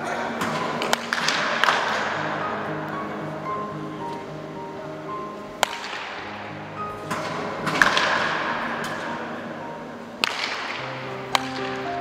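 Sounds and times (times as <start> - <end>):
background music: 0.0 - 12.0
wooden bat hitting baseball: 5.6 - 6.4, 7.1 - 9.1, 10.2 - 11.9.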